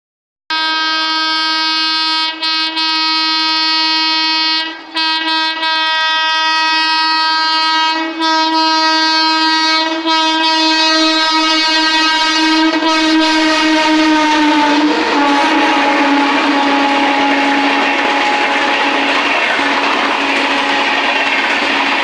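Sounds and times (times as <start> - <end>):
locomotive horn blowing: 0.5 - 22.0.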